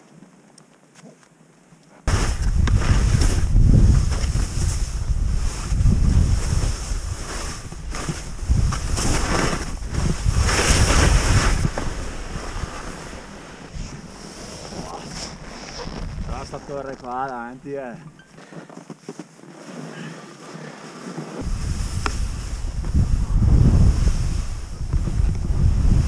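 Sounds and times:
skis hissing through snow: 0:02.1 - 0:16.9, 0:19.5 - 0:26.0
wind buffeting microphone: 0:02.1 - 0:17.0, 0:21.4 - 0:26.0.

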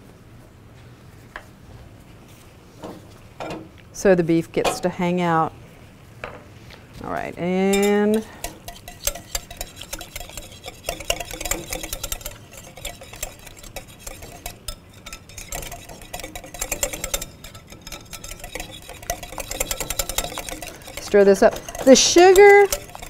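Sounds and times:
wire whisk clicking against glass bowl: 0:07.8 - 0:23.0.

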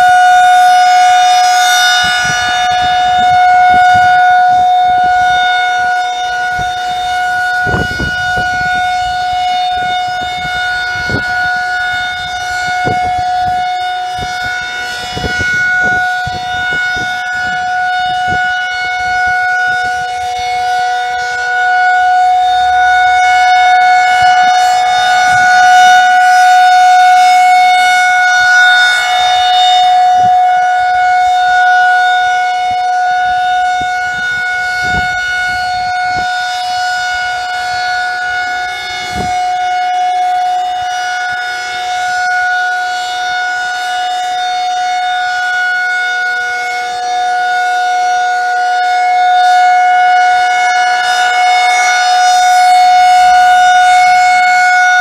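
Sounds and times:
rotating warning siren: 0:00.0 - 0:55.0.

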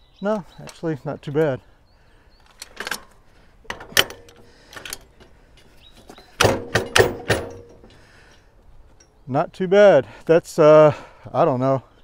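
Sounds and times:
metal clanks and thunks: 0:02.6 - 0:08.1.

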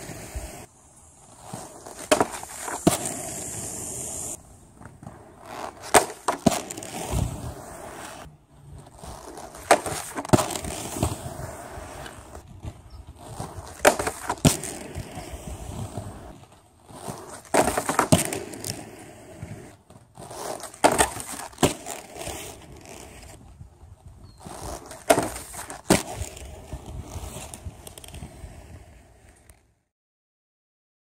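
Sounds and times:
inline skates rolling on concrete: 0:00.0 - 0:29.9
skates clacking on plastic rail: 0:01.5 - 0:03.6, 0:04.8 - 0:07.4, 0:08.9 - 0:11.2, 0:12.0 - 0:15.3, 0:16.3 - 0:23.4, 0:24.5 - 0:28.3.

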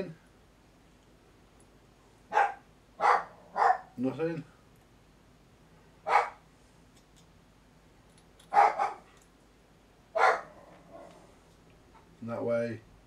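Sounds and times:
dog barking: 0:02.3 - 0:04.0, 0:06.0 - 0:06.4, 0:08.5 - 0:09.1, 0:10.1 - 0:11.1.

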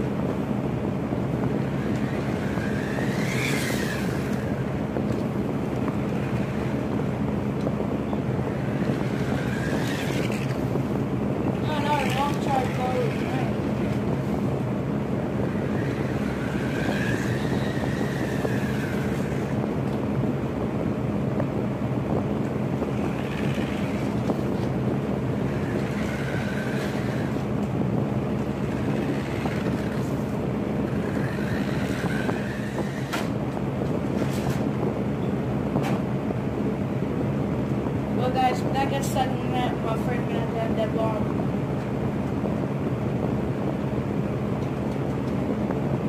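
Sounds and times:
electric fan humming: 0:00.0 - 0:46.0
toy car motor whining: 0:01.5 - 0:05.3, 0:05.9 - 0:06.9, 0:08.4 - 0:10.7, 0:11.6 - 0:14.1, 0:15.4 - 0:19.6, 0:22.9 - 0:24.7, 0:25.4 - 0:27.5, 0:28.5 - 0:33.4.

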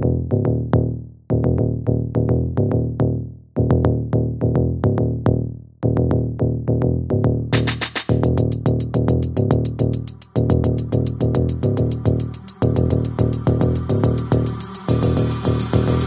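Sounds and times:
electronic music with steady beat: 0:07.6 - 0:16.0
fast high ticking pattern: 0:07.6 - 0:16.0.

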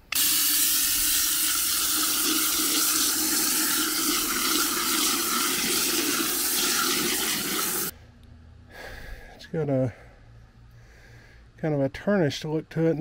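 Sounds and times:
running water rinsing a pot: 0:00.1 - 0:07.9.

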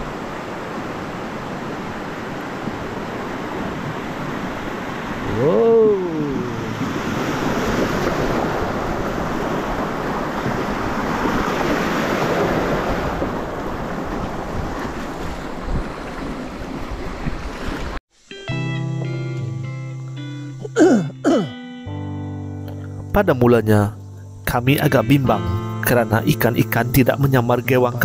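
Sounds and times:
rushing river water: 0:00.0 - 0:18.0
wind buffeting microphone: 0:00.0 - 0:18.0
short rising and falling call: 0:05.2 - 0:07.5.

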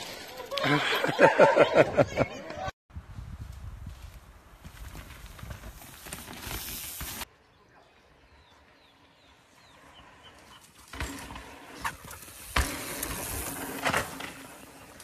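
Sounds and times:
bike tyres rushing over dirt: 0:03.4 - 0:07.3, 0:09.5 - 0:15.0
bike knocking and rattling: 0:10.6 - 0:15.0.

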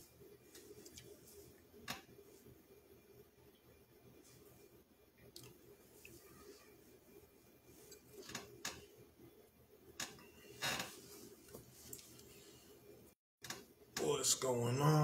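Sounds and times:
low steady hum: 0:00.0 - 0:15.0
faint clicks and knocks: 0:07.8 - 0:08.9, 0:13.4 - 0:14.1.

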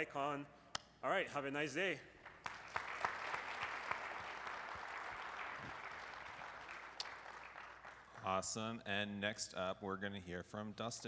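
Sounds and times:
audience applauding: 0:02.2 - 0:08.5.

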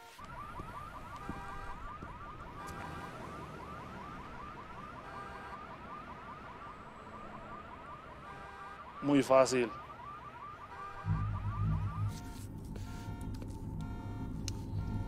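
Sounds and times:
car alarm chirps and beeps: 0:00.0 - 0:03.3, 0:10.7 - 0:15.0.

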